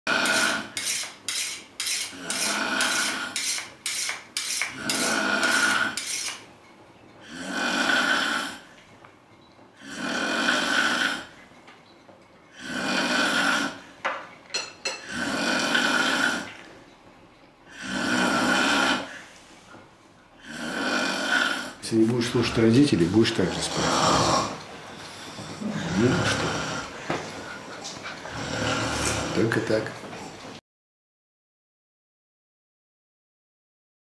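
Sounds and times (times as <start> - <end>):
person snoring loudly: 0.1 - 0.8, 2.1 - 3.4, 4.7 - 6.1, 7.2 - 8.7, 9.8 - 11.4, 12.6 - 13.9, 15.0 - 16.6, 17.7 - 19.2, 20.4 - 24.6, 25.6 - 27.0, 28.3 - 29.6
cutlery clinking on dishes: 14.1 - 15.1.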